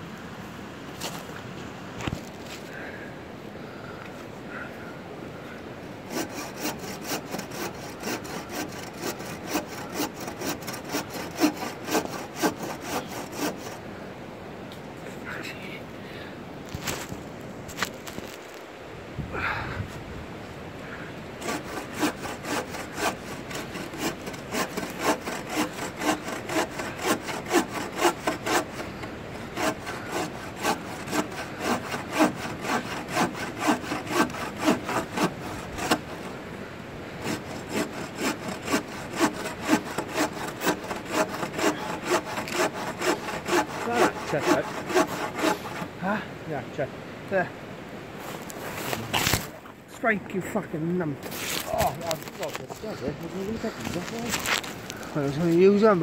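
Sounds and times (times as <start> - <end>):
bow saw cutting log: 6.1 - 13.8, 21.4 - 36.4, 37.2 - 46.0.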